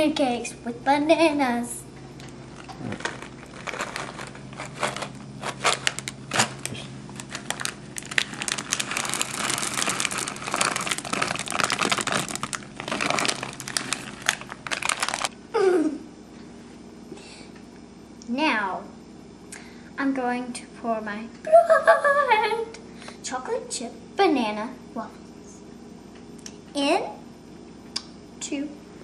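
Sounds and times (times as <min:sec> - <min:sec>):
plastic bag crinkling: 0:02.5 - 0:15.4.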